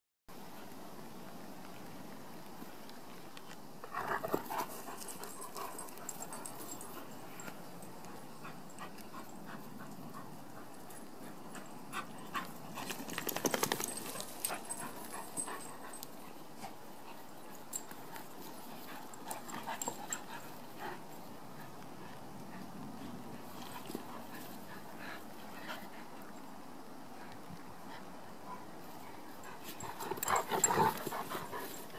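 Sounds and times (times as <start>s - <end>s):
dogs playing: 2.5s - 31.9s.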